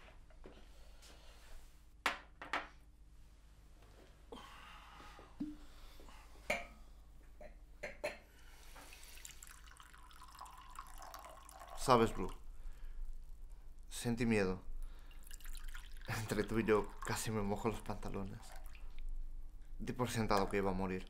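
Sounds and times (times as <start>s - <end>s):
liquor pouring into glass: 8.9s - 12.4s, 14.9s - 19.0s.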